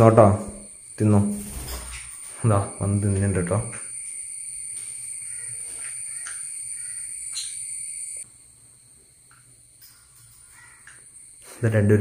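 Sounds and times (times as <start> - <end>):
steady high whine: 0.0 - 12.0
parrots calling: 5.2 - 7.9, 9.8 - 11.6.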